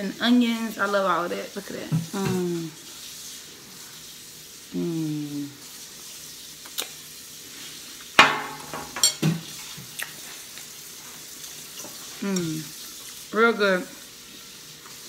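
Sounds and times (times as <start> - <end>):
faint steady hiss: 0.0 - 15.0
person humming mmm: 4.8 - 5.6, 12.2 - 12.7
metal utensil clinking on ceramic bowl: 8.2 - 9.4.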